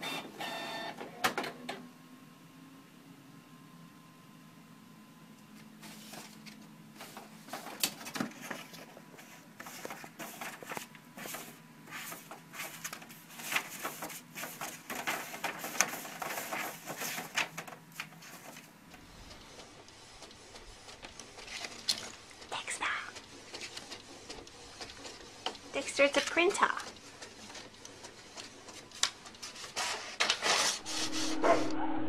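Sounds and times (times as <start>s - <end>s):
printer hum: 0.0s - 5.2s, 5.8s - 22.5s, 26.8s - 32.0s
paper rustling: 5.8s - 18.7s.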